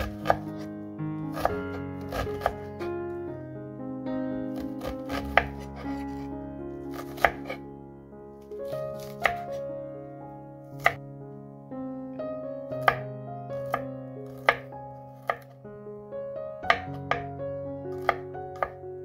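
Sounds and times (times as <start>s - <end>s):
knife chopping on wooden board: 0.0s - 0.7s, 1.3s - 2.6s, 4.6s - 6.3s, 6.9s - 7.6s, 9.0s - 9.5s, 10.8s - 11.0s, 13.6s - 15.5s, 16.7s - 17.2s, 18.0s - 18.8s
background music with sustained notes: 0.0s - 19.0s.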